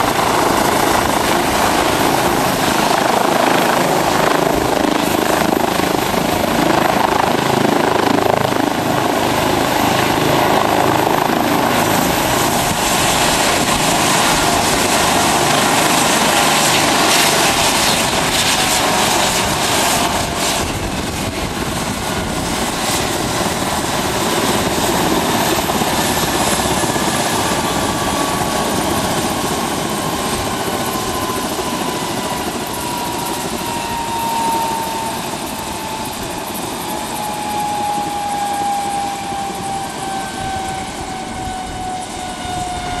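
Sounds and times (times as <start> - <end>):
helicopter engine rush: 0.0 - 43.0.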